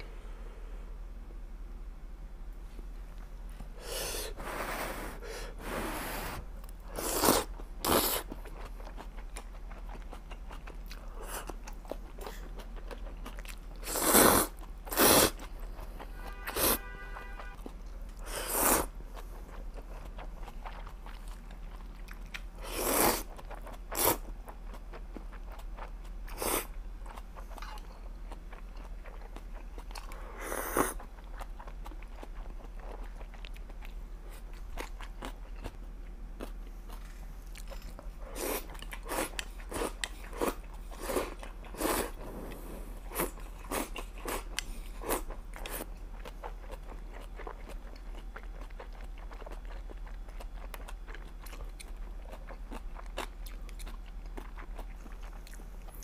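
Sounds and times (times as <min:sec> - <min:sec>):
person slurping noodles: 0:03.8 - 0:08.3, 0:13.8 - 0:15.4, 0:18.2 - 0:18.9, 0:22.6 - 0:23.2
chewing and mouth sounds: 0:06.6 - 0:16.1, 0:17.4 - 0:56.0.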